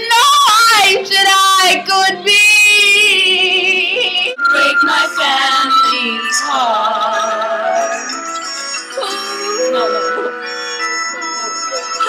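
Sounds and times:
woman belting power ballad: 0.0 - 8.1.

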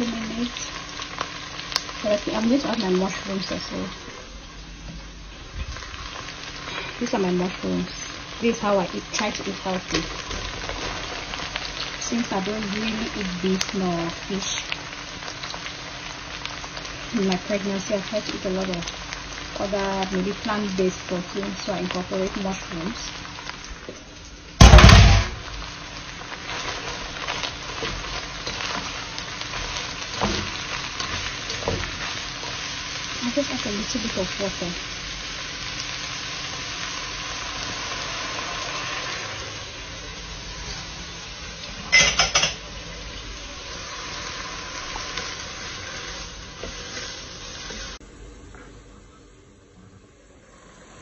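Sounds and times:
small crackles: 0.0 - 48.9
vegetables sizzling in a pan: 0.0 - 51.0
knocks on pan: 42.0 - 42.6.

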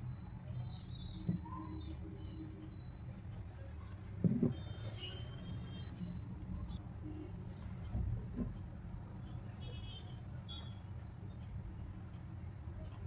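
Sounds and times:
ceramic cup soft bumps: 4.2 - 5.1.

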